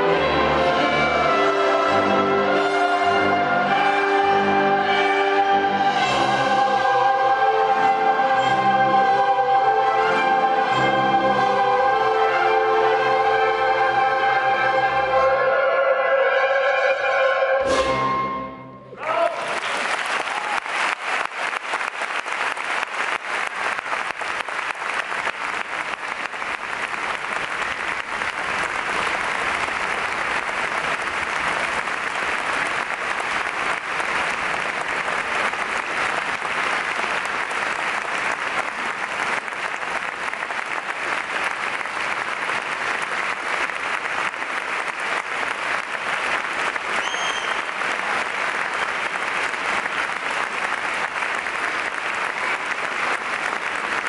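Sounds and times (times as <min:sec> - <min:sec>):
orchestra chord: 0:00.0 - 0:19.0
audience applauding: 0:19.0 - 0:54.0.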